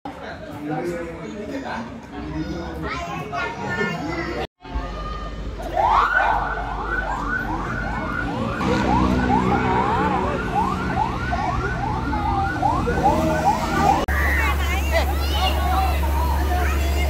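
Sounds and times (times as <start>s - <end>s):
fire truck siren yelping: 5.7s - 17.0s
truck engine running: 6.6s - 17.0s.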